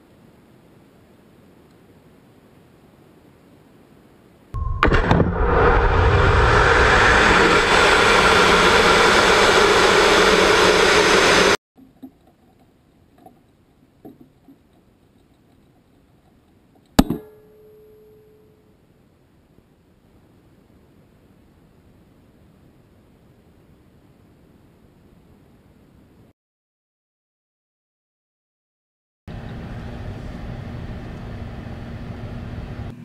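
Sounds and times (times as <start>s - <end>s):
rocket motor roaring: 4.6s - 11.6s.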